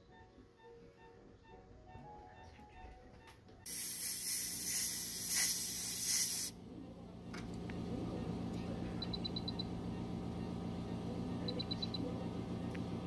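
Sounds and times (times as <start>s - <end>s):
air jet hissing: 3.7s - 6.6s
low machine hum: 4.5s - 13.0s.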